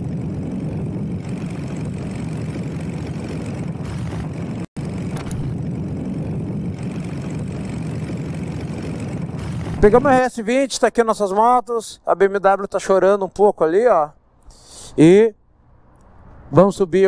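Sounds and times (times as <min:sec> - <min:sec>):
wind noise: 0:00.0 - 0:10.3
motorcycle engine hum: 0:00.0 - 0:10.4.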